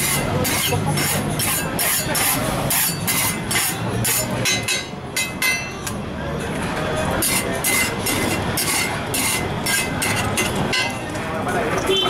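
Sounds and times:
rhythmic metallic clatter: 0.0 - 5.8
street noise: 0.0 - 12.0.

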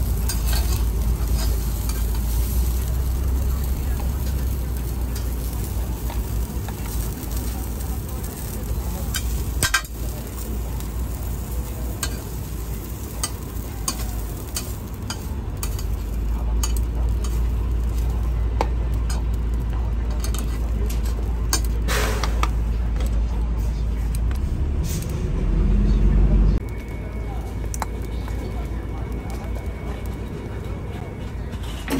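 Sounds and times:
meat sizzling: 0.0 - 22.6
metal utensils clicking and scraping: 0.0 - 25.1.

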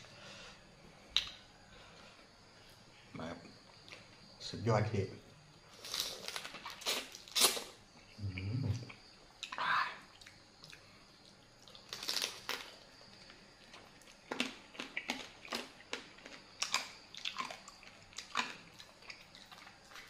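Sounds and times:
crunching and chewing crab shell: 5.7 - 7.7, 10.2 - 20.0.

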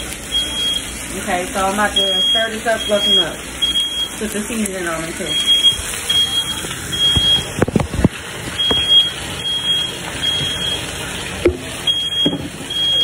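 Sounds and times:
smoke alarm beeping: 0.2 - 1.0, 1.6 - 7.6, 8.6 - 10.9, 11.8 - 13.0.

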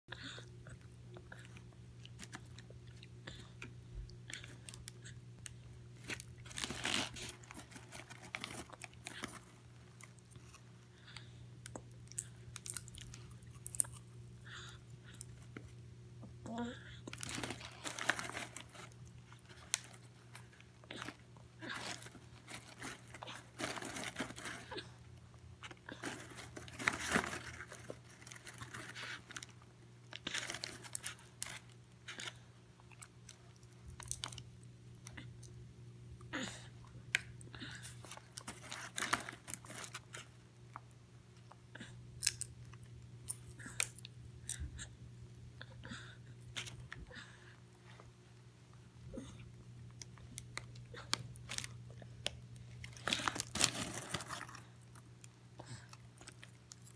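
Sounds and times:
child chewing popcorn: 0.1 - 56.9
paper bag rustling: 6.1 - 9.4, 17.2 - 19.0, 26.0 - 29.4, 52.9 - 54.6.

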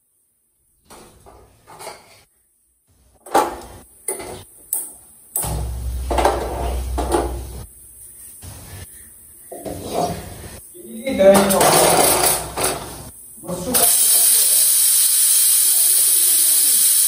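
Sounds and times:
kitchen utensils and pots clattering: 0.9 - 2.3, 3.2 - 7.6, 11.3 - 13.1.

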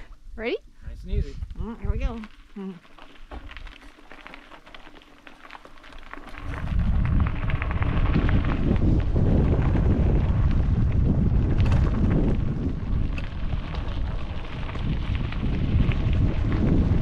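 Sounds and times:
wind noise on microphone: 0.0 - 2.4, 5.8 - 17.0
bike clicking and rattling: 2.0 - 17.0.

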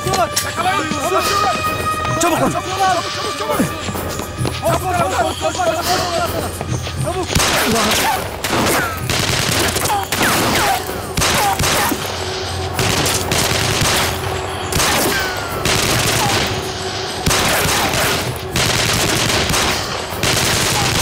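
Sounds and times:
rapid gunfire: 7.3 - 21.0.

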